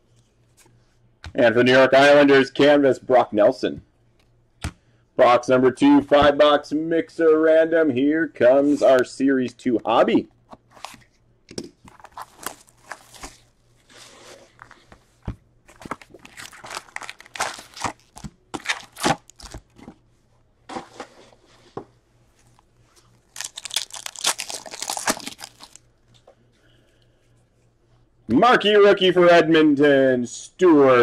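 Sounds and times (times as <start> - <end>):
cardboard box rustles and clicks: 11.9 - 13.5, 14.4 - 20.0
wrapper crinkling tear: 11.9 - 13.5, 15.7 - 19.8, 23.2 - 25.8.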